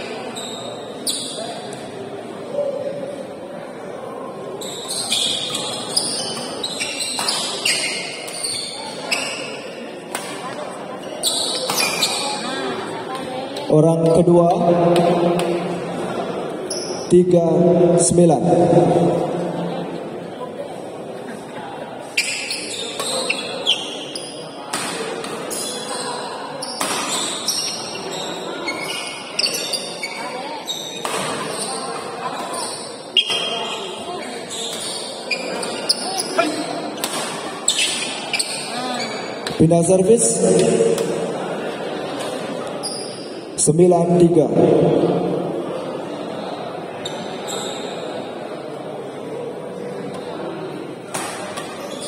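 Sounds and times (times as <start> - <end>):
background chatter: 0.0 - 52.0
crowd noise: 0.0 - 52.0
shoes squeaking on court: 0.2 - 1.7, 4.6 - 9.7, 10.4 - 12.6, 22.1 - 24.5, 25.2 - 39.6, 42.7 - 43.4, 47.0 - 48.2, 51.4 - 52.0
rackets hitting shuttlecock: 37.0 - 37.5.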